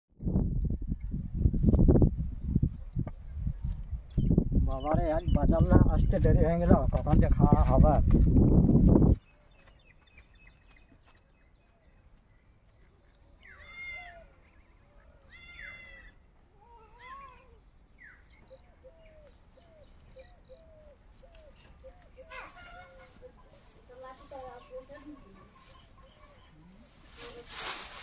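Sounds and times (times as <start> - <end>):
meow-like animal cries: 13.5 - 14.3, 15.3 - 17.6.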